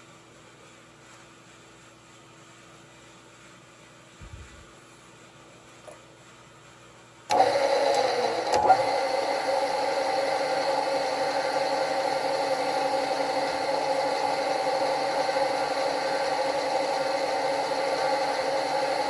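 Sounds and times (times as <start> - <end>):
spindle motor running: 7.3 - 19.0.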